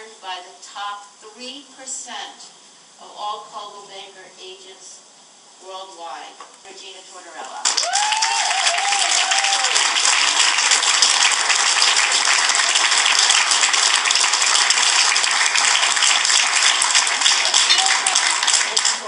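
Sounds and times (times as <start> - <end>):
audience applauding: 7.6 - 19.0
audience cheering: 7.7 - 19.0.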